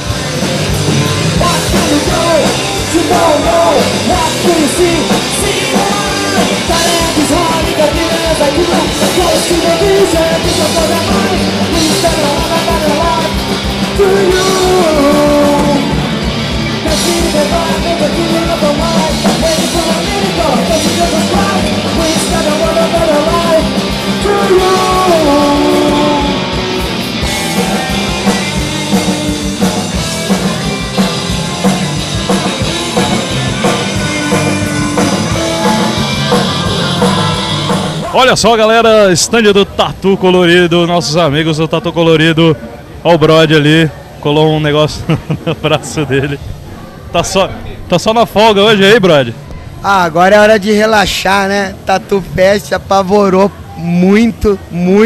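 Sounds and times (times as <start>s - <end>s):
punk band playing: 0.0s - 42.4s, 43.6s - 55.0s
person singing: 1.4s - 16.1s, 16.8s - 26.6s, 30.3s - 38.1s.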